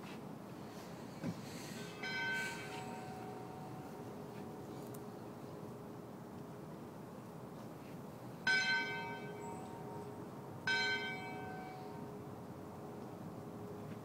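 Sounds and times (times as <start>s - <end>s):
church bell tolling: 1.7s - 4.9s, 8.4s - 12.2s.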